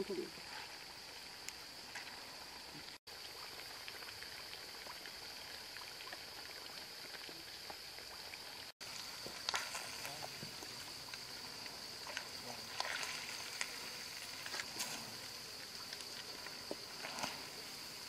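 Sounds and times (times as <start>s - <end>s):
deep-frying sizzle with pops: 0.0s - 12.6s.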